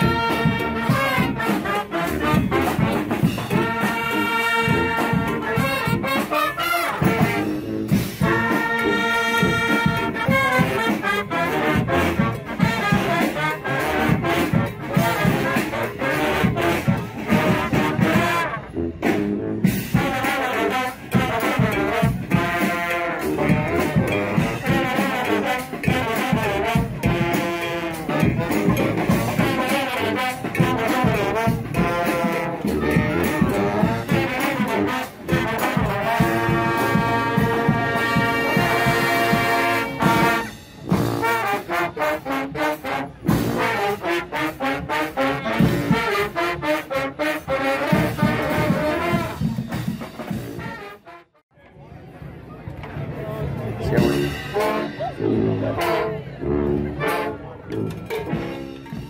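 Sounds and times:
brass band playing: 0.0s - 51.5s, 53.8s - 59.0s.

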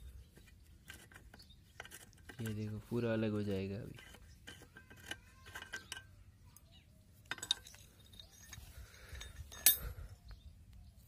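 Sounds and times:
ringing metal clink: 7.3s - 10.0s.

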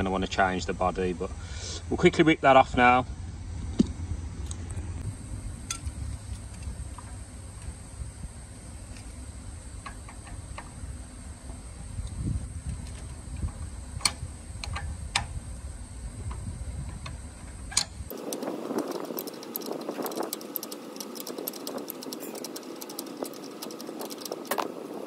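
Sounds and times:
metal wrench clicks: 17.7s - 24.7s.

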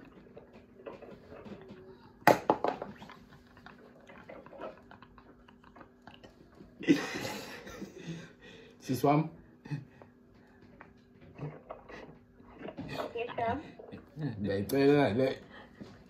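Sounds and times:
young men stifled laughter: 6.8s - 8.4s.

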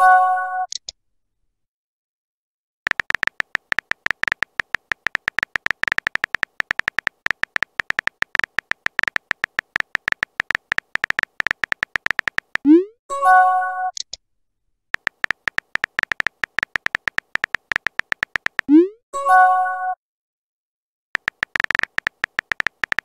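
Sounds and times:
keyboard tap clicks: 2.9s - 12.7s, 15.0s - 18.7s, 21.2s - 23.0s.

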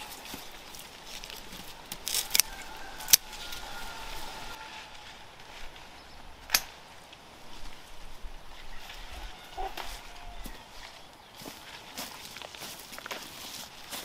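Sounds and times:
sharp clicks: 6.5s - 6.8s.

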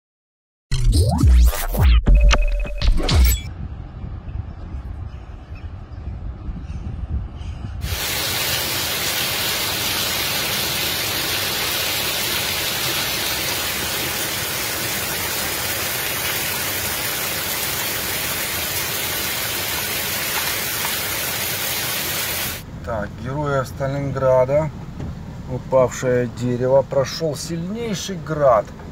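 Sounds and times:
low rumble: 1.8s - 8.1s
hail falling on foliage and gravel: 7.9s - 22.6s.

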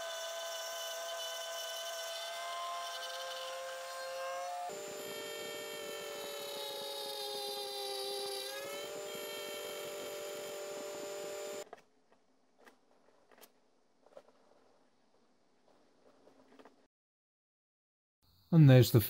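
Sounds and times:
milling motor whining: 0.0s - 11.6s.

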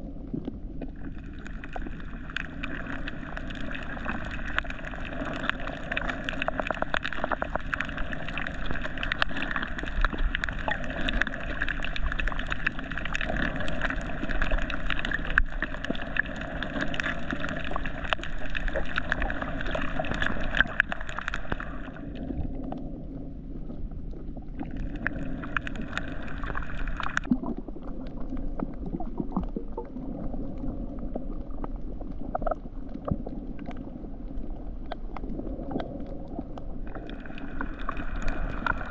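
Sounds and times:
dense crackle of clicks: 0.0s - 38.9s
underwater hiss: 24.8s - 27.3s.

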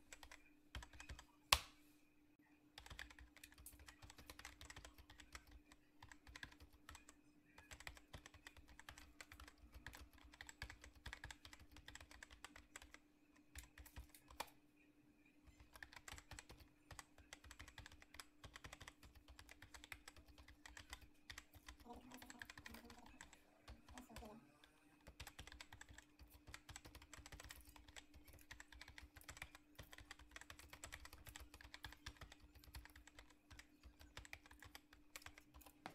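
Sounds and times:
rapid irregular clicking: 25.0s - 35.9s.

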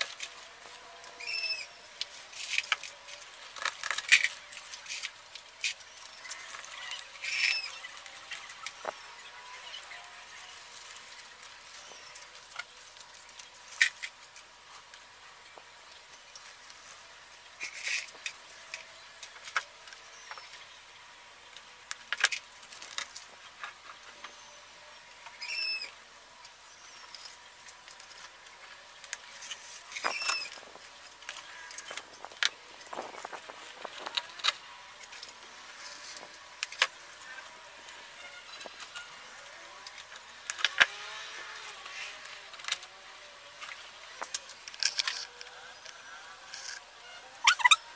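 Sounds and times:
high chirping squeaks: 1.2s - 1.8s, 6.3s - 8.0s, 25.4s - 25.9s, 29.9s - 30.6s, 47.4s - 47.9s.

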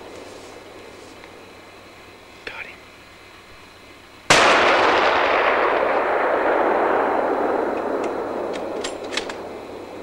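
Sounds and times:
rifle shot with echo: 4.3s - 9.8s.

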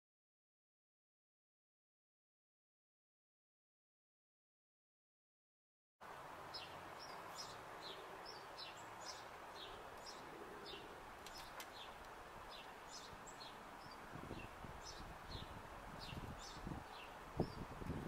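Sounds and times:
faint steady hiss: 6.0s - 18.0s
songbirds chirping: 6.0s - 18.0s.

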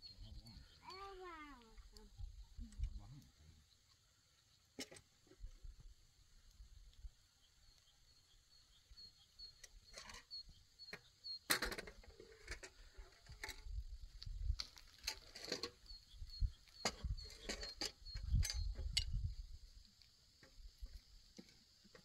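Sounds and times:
bird chirping: 0.0s - 4.0s, 7.2s - 12.1s, 15.4s - 19.4s
wind rumbling on microphone: 13.2s - 14.8s, 15.9s - 19.8s
footsteps on dry ground: 14.1s - 15.4s.

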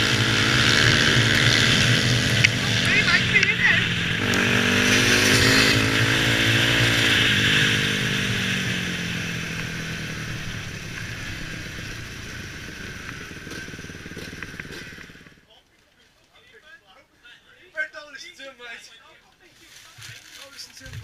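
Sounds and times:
motorcycle engine running: 0.0s - 15.5s.

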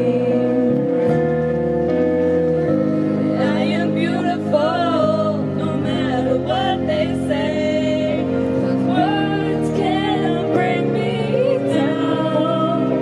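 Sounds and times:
woman singing into microphone: 0.0s - 1.2s, 3.3s - 13.0s
instrumental backing track: 0.0s - 13.0s.

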